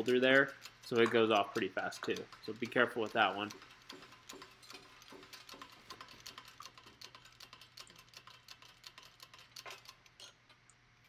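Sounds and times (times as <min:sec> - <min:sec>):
hydraulic press clicking: 0:00.0 - 0:05.9.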